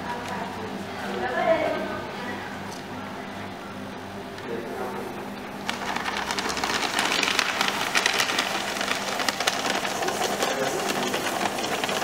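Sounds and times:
paper shredder shredding paper: 0:05.6 - 0:12.0.

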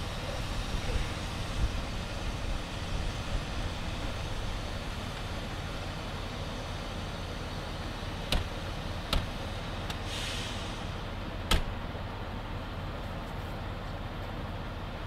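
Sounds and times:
vehicle engine idling: 0:00.0 - 0:15.0
short hiss: 0:09.9 - 0:11.0.

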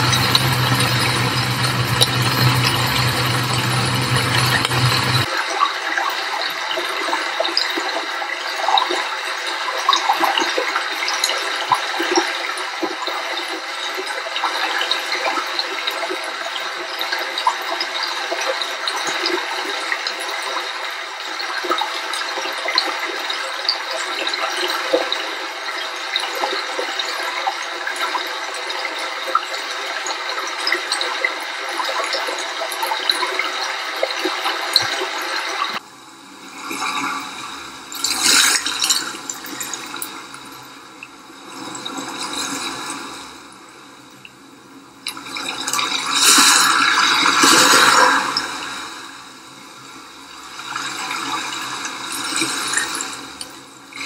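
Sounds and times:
running splashing water: 0:45.1 - 0:49.2.

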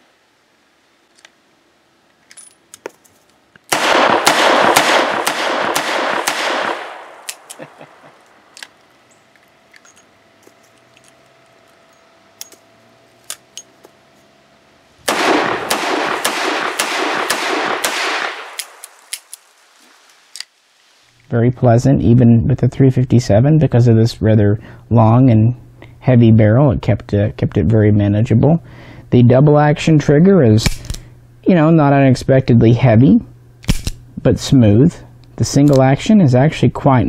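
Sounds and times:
revolver gunshots: 0:03.7 - 0:08.2, 0:15.0 - 0:19.6.

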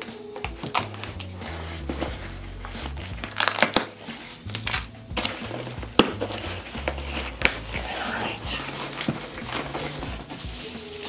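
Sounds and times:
bubble wrap crinkling: 0:00.0 - 0:11.0
cardboard box being torn open: 0:03.2 - 0:07.7.

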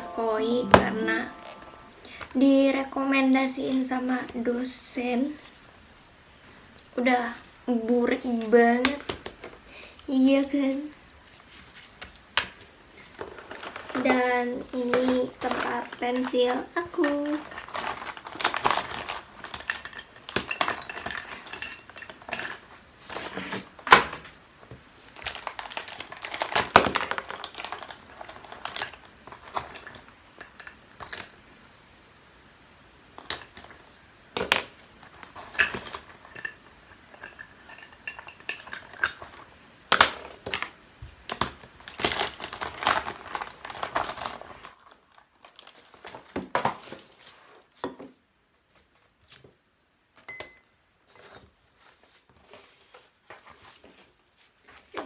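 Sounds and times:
pencil case rustling: 0:13.2 - 0:23.9, 0:41.8 - 0:47.5.

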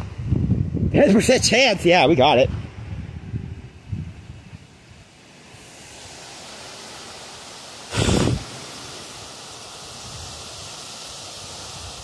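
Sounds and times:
wind gust buffeting microphone: 0:00.0 - 0:04.7, 0:07.9 - 0:08.6
strong wind rushing through trees: 0:00.0 - 0:12.0.

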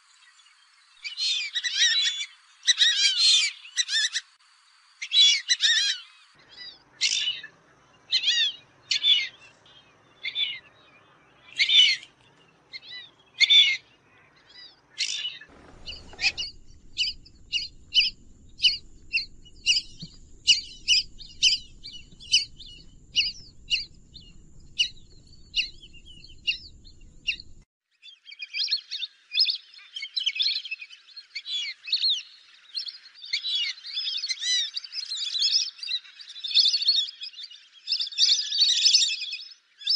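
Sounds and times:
ducks whistling calls: 0:12.7 - 0:27.6
low rumble: 0:15.5 - 0:27.6.

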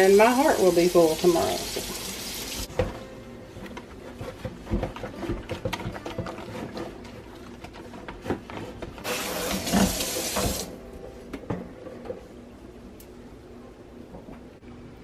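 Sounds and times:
kitchen tap running: 0:00.0 - 0:02.7, 0:09.0 - 0:10.7.

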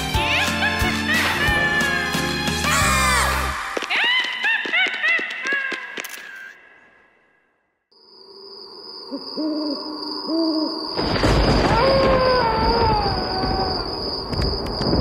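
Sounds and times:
owl hooting: 0:09.1 - 0:10.9
wavering howl-like wail: 0:11.6 - 0:14.0.

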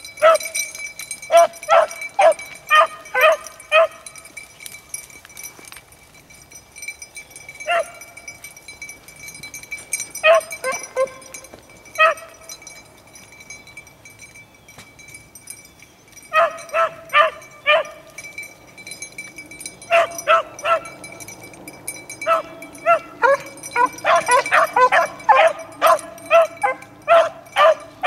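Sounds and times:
dogs baying: 0:00.0 - 0:04.4, 0:07.5 - 0:08.5, 0:09.4 - 0:12.9, 0:16.2 - 0:28.0.

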